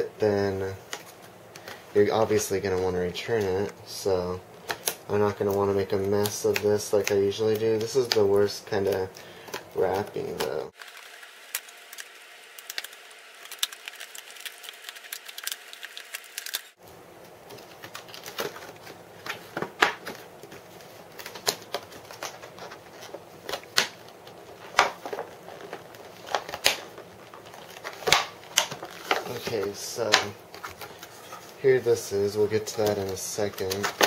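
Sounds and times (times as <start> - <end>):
stiff plastic crackling: 0.4 - 34.0
scissors cutting hard plastic: 4.8 - 16.7.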